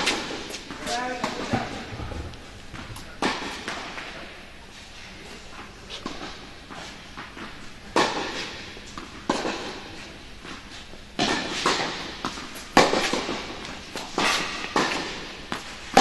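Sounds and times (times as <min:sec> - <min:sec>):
racket striking tennis ball: 0:00.0 - 0:01.8, 0:02.8 - 0:04.1, 0:06.0 - 0:16.0
tennis ball bouncing: 0:06.0 - 0:16.0.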